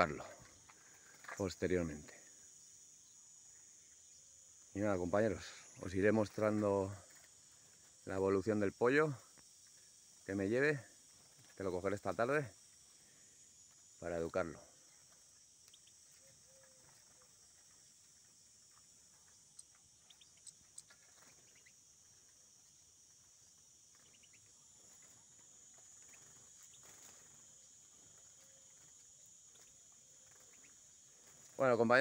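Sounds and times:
high-pitched insect drone: 0.0 - 32.0.

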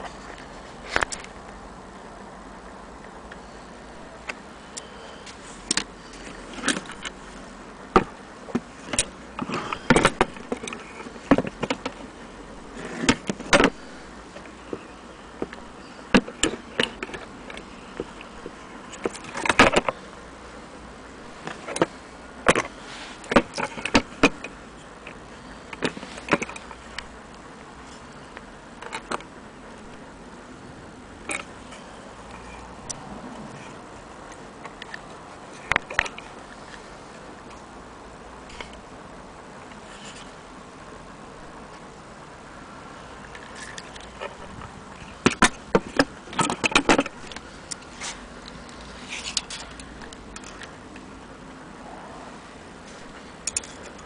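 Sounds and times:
metal parts clicking and knocking: 7.9 - 12.0, 43.3 - 50.7, 53.0 - 54.0
metal parts clicking together: 53.4 - 54.0.

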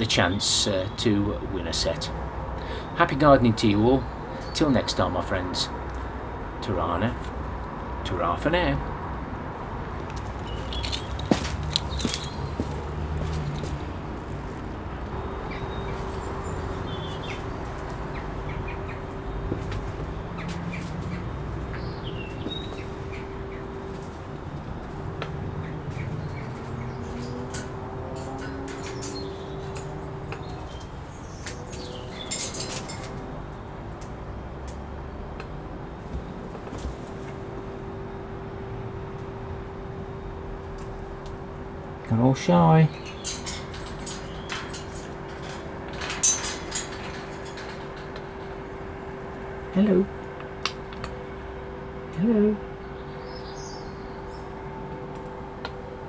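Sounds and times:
steady low hum: 3.4 - 56.0
steady drone: 12.6 - 56.0.

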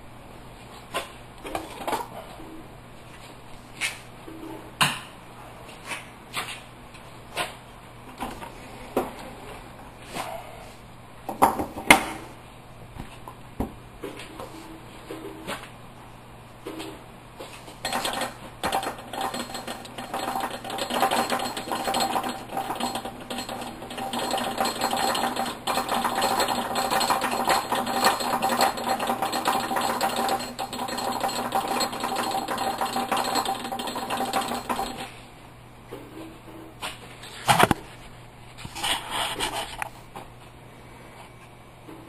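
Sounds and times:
metal lathe whining and clattering: 17.9 - 35.1.

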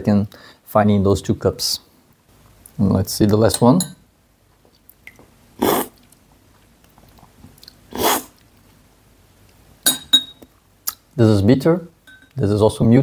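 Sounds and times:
loud coffee slurps: 7.9 - 8.3.

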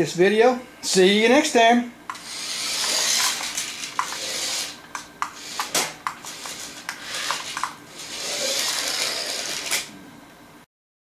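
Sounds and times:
toy truck motor whirring: 2.1 - 9.9.

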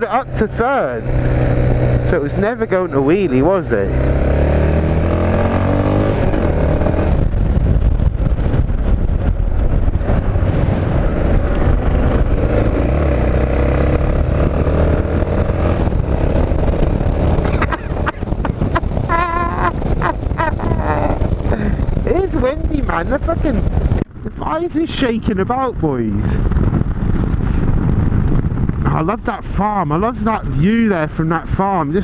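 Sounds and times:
motorcycle engine accelerating: 0.0 - 24.6
wind rushing over microphone: 0.0 - 32.0.

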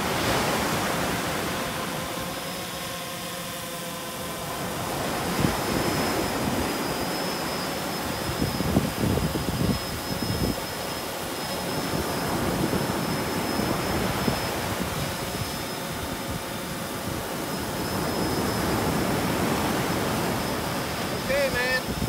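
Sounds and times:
quadcopter propellers buzzing: 0.0 - 22.0
wind on microphone: 4.5 - 22.0.

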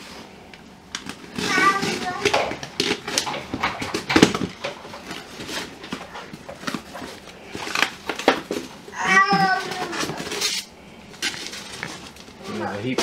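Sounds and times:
child whining: 1.4 - 2.6, 8.9 - 10.5.

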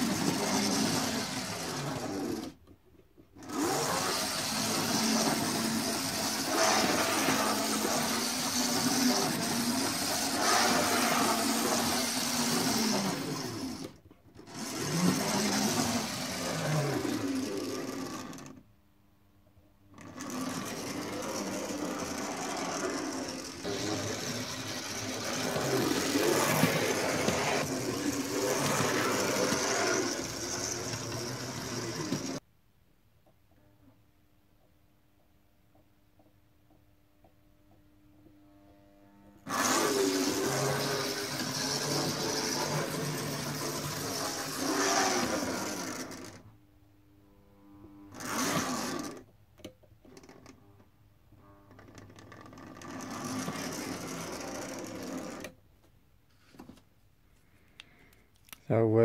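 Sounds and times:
model train motor whirring: 0.0 - 2.6, 3.4 - 18.6, 20.0 - 32.4, 39.4 - 46.5, 48.1 - 50.5, 51.8 - 55.6.

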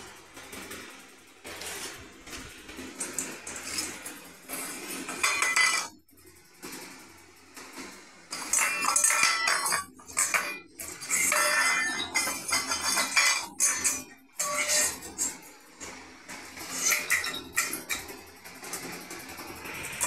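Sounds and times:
metal bowl clattering on tiles: 5.1 - 6.0, 8.3 - 15.1, 16.7 - 18.0.

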